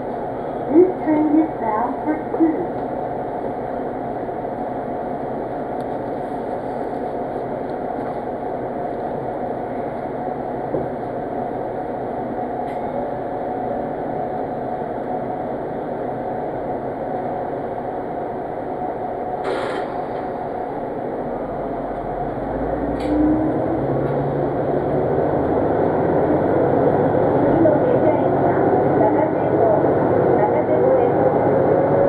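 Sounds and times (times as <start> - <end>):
diesel railcar engine: 0.0 - 32.0
short hiss: 19.4 - 20.1.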